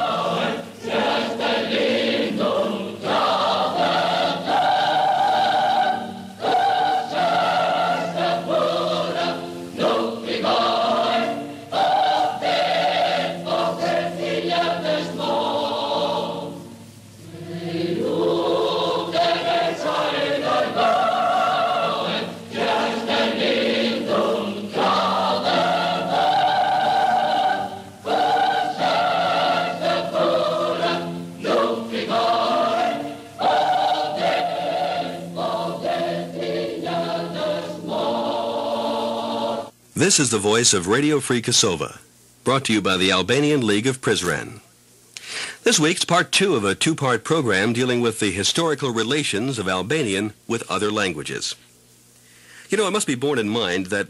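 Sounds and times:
choir singing held chords: 0.0 - 39.8.

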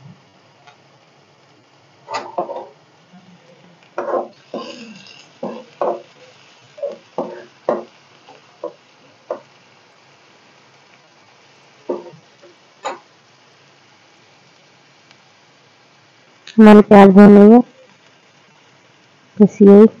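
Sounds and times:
faint oil sizzle: 0.0 - 20.0
metal spoon scraping a pan: 4.0 - 6.2, 6.8 - 7.9.

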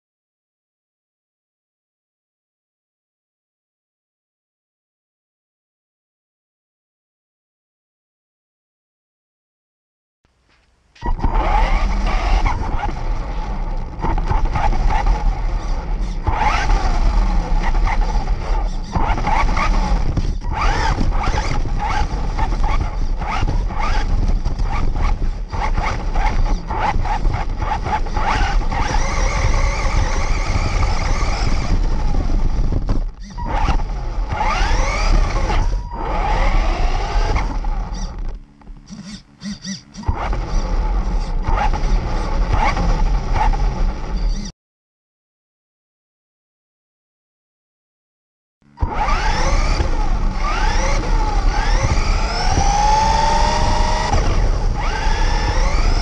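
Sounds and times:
tyres rumbling and scraping: 10.5 - 44.5
rc car motor whining: 11.0 - 44.5, 48.8 - 56.0.

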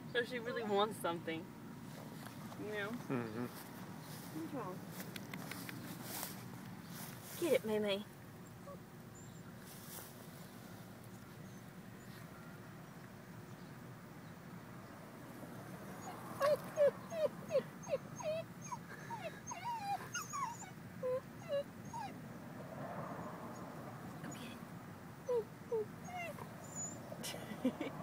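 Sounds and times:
dog whimpering and whining: 16.0 - 22.2, 25.2 - 27.1.

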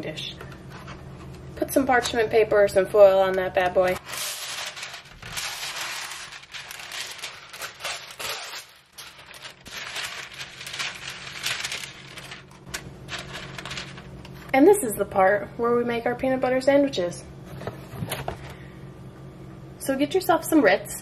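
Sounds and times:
parchment paper crinkling: 3.0 - 14.6.

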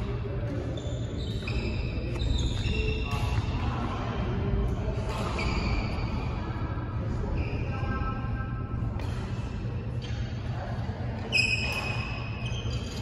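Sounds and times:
low hum of hall: 0.0 - 13.0
shoes squeaking on court floor: 0.1 - 3.8, 4.8 - 6.4, 9.0 - 13.0
racket hitting shuttlecock: 8.9 - 10.3.

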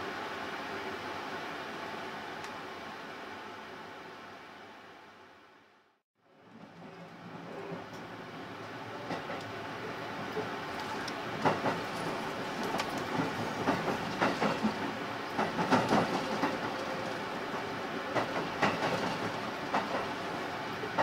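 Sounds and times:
train running noise: 6.2 - 21.0
wheels clacking over rail joints: 6.4 - 21.0.

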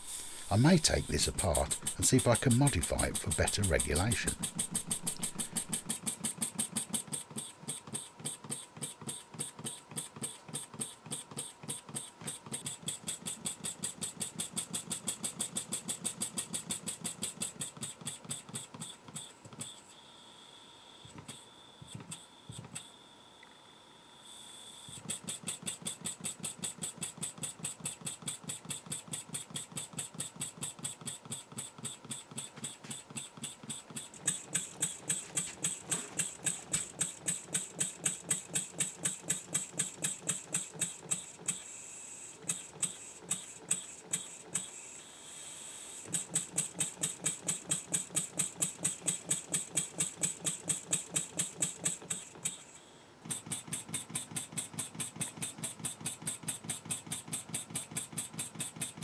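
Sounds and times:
model engine exhaust puffs: 25.0 - 41.8, 53.3 - 59.0.

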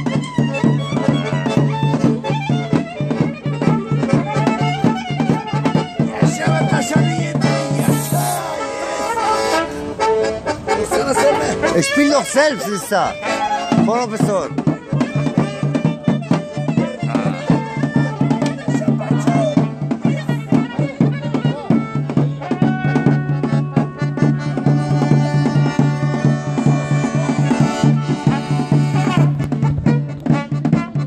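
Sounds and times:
large drum beats: 0.0 - 8.5, 13.6 - 31.0
accordion: 0.0 - 31.0
clarinet melody: 7.4 - 13.9, 20.3 - 31.0.

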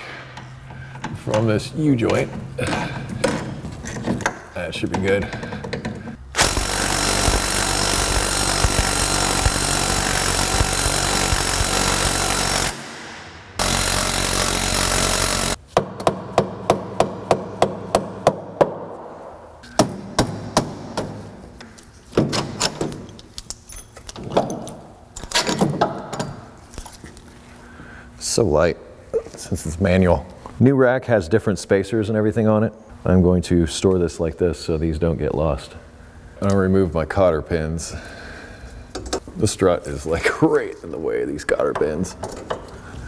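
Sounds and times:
impact wrench hammering: 5.2 - 19.0, 19.6 - 21.4.

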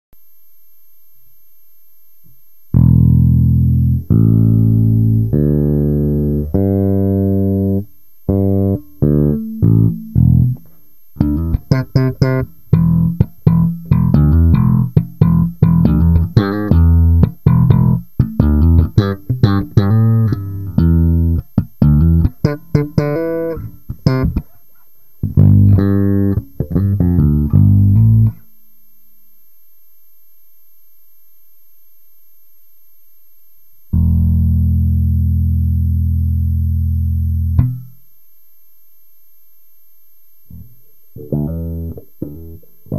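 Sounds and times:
electric bass plucked: 2.7 - 24.5, 25.2 - 28.4, 33.9 - 38.0, 40.5 - 42.9.

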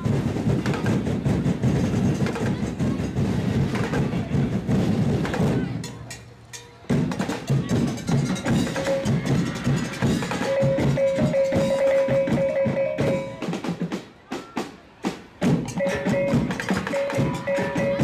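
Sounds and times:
percussion dance music: 0.0 - 18.0.

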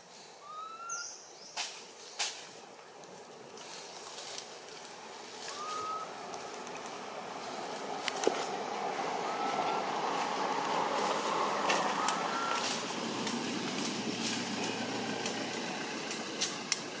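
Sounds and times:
vehicle passing by: 3.6 - 17.0.

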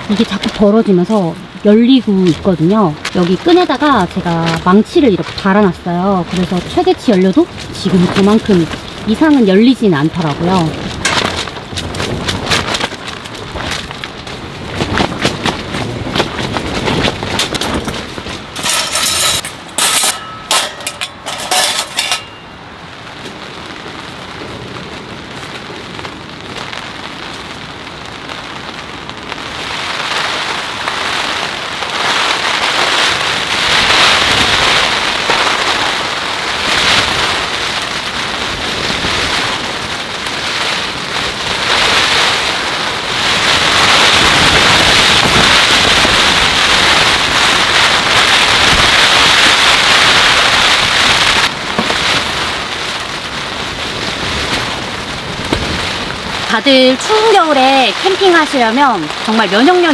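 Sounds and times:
heavy rain on tent fabric: 0.0 - 59.9
metal utensils clattering into tray: 18.6 - 22.4.

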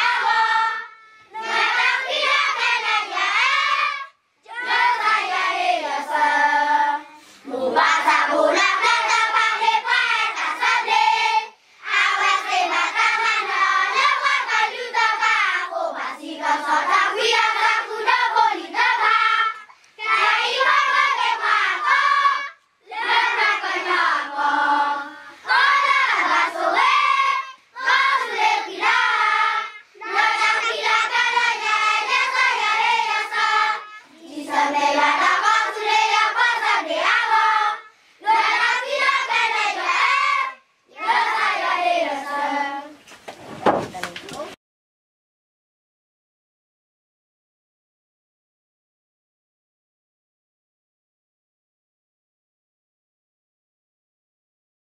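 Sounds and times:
children singing in unison: 0.0 - 43.0.

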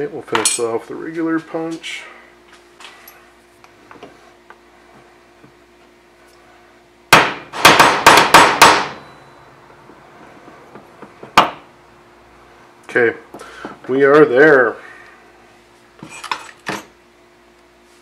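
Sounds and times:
hammer tapping a punch: 7.1 - 9.0.

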